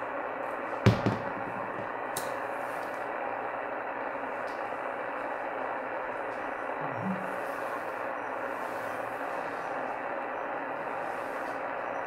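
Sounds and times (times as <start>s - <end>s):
radio static hiss: 0.0s - 12.0s
sharp knock: 0.9s - 1.4s.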